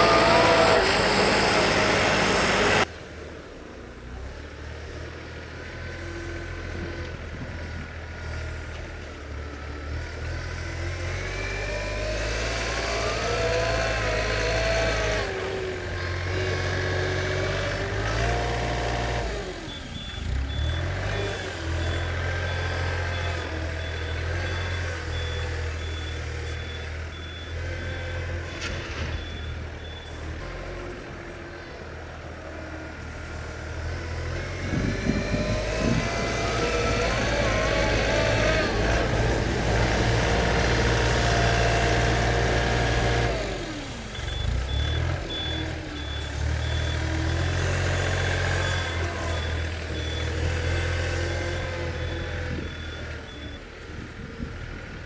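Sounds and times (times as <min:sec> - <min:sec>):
diesel engine revving: 0:00.0 - 0:03.0, 0:04.2 - 0:55.0
reversing alarm beeping: 0:18.6 - 0:31.1, 0:43.8 - 0:54.3.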